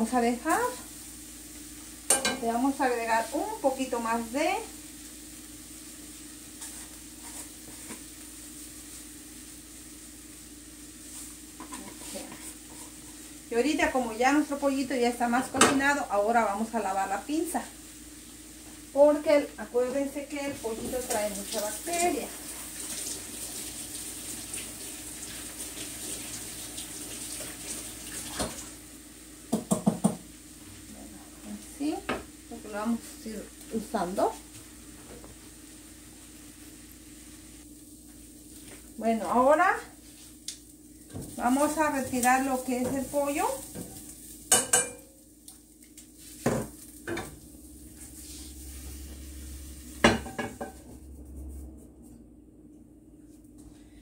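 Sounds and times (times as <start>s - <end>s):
faint sizzle: 0.0s - 54.0s
kitchen tap running: 19.9s - 30.3s.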